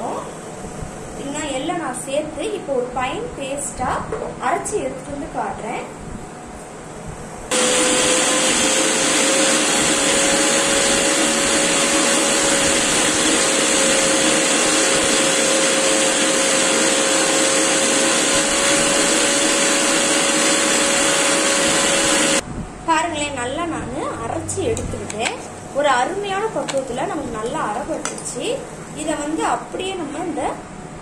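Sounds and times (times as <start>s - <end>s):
electric mixer grinder whirring: 7.5s - 22.4s.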